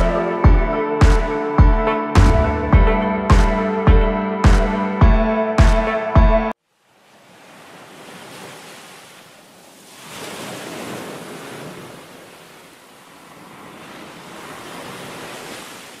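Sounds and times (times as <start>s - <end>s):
ocean waves breaking: 6.7s - 16.0s.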